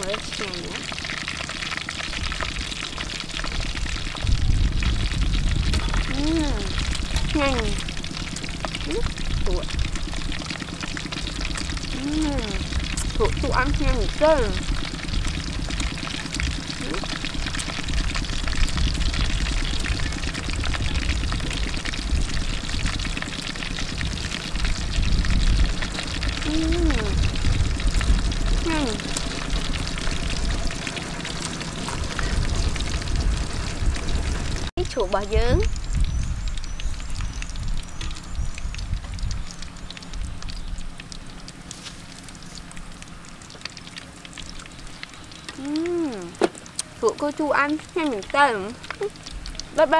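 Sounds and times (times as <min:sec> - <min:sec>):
crunchy fritter crackling: 0:00.0 - 0:49.9
wind buffeting microphone: 0:03.4 - 0:10.5, 0:11.4 - 0:30.8, 0:31.7 - 0:41.0.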